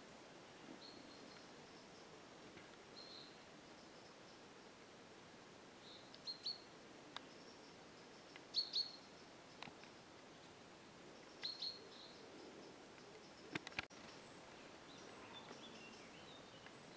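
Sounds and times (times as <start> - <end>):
faint background hiss: 0.0 - 16.9
bird chirping: 2.9 - 4.5, 5.8 - 9.7, 11.2 - 16.9.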